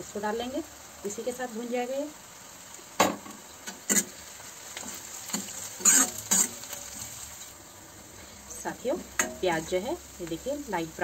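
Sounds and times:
low sizzle of frying: 0.0s - 11.0s
metal ladle scraping iron pan: 4.8s - 7.0s.

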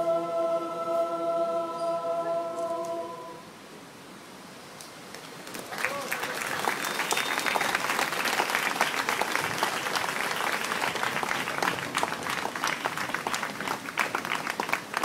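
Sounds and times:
crowd applauding: 5.4s - 15.0s.

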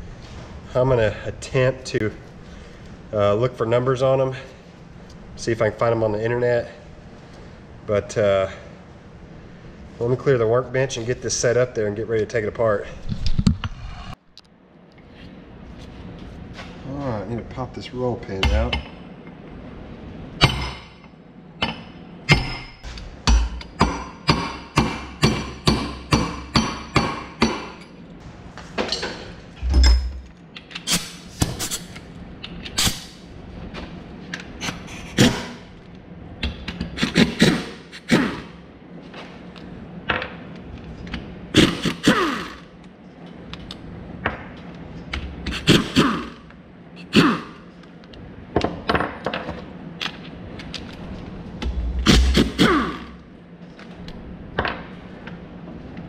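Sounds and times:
hammer striking steel punch: 20.4s - 20.9s, 21.6s - 27.8s, 51.6s - 53.1s
knocks and clanks of steel tools: 28.8s - 30.3s.

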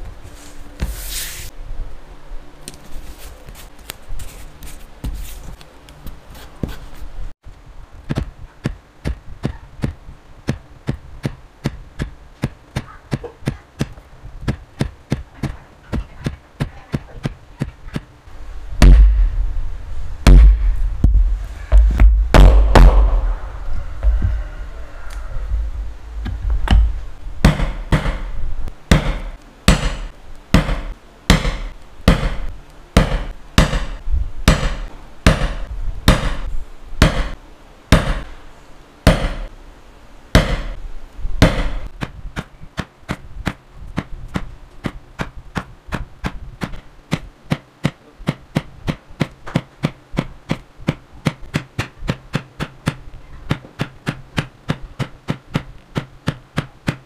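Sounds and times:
mallet striking leather punch: 18.8s - 19.2s, 20.3s - 21.2s, 26.6s - 36.4s, 37.0s - 38.2s, 39.1s - 39.5s, 40.4s - 40.8s, 41.4s - 43.2s, 44.8s - 57.0s.

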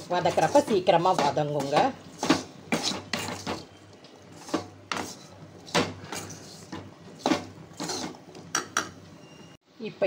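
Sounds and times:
metal ladle scraping a pan: 0.0s - 8.2s.

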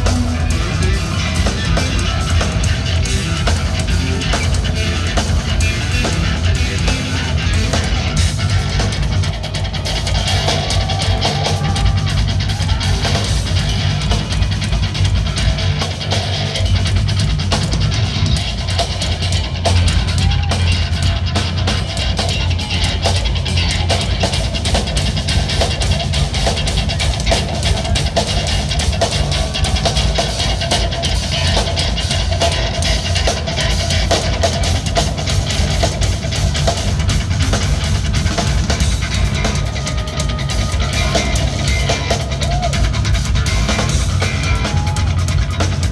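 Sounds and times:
drum kit: 0.0s - 45.9s
electric guitar: 0.0s - 45.9s
live metal band playing: 0.0s - 45.9s.

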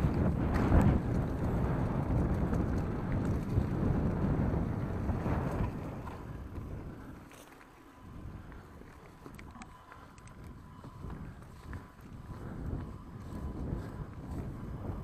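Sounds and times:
bike tyre rumble and rattle: 0.0s - 15.0s
wind buffeting microphone: 0.0s - 15.0s
faint clicks: 8.4s - 11.9s.

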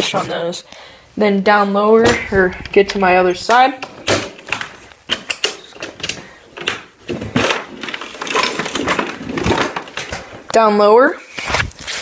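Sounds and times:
plastic boxes rattling: 3.5s - 10.5s.

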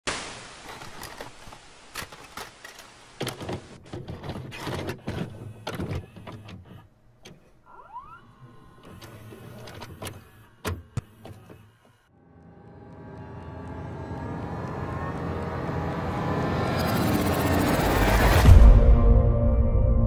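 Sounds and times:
tape hiss and static: 0.1s - 4.0s
video deck mechanism clicks and clunks: 2.0s - 7.7s, 8.7s - 12.0s.

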